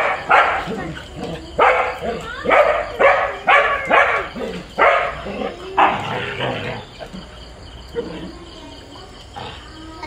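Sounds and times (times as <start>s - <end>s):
dog barks: 0.0s - 1.0s, 1.6s - 6.6s.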